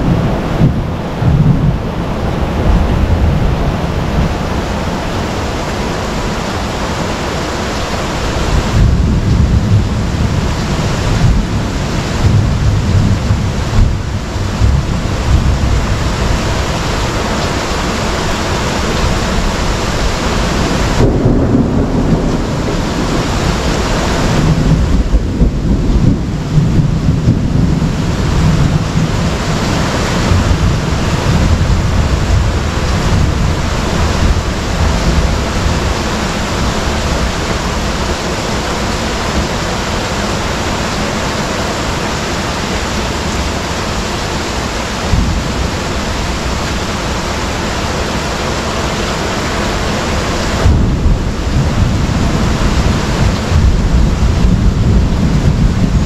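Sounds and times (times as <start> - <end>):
low rumbling thunder: 0.0 - 5.6, 8.1 - 41.2, 41.8 - 49.0, 49.7 - 56.0
heavy rain pouring: 0.0 - 56.0.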